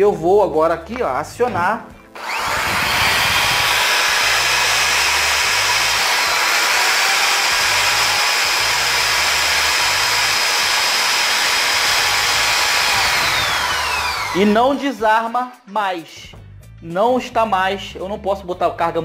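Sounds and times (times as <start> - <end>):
electric drill running: 2.2 - 14.7.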